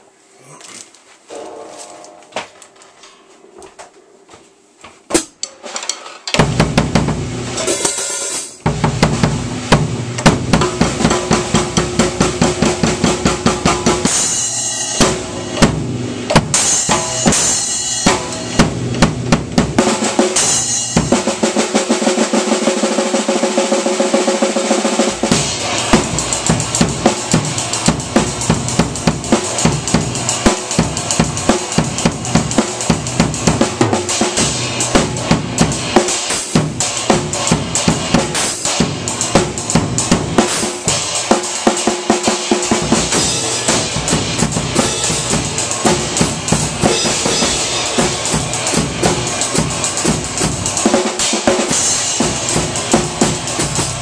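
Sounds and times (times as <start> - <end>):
drum kit fast beat: 6.4 - 54.0
cymbal crashes: 7.0 - 21.4, 25.0 - 54.0.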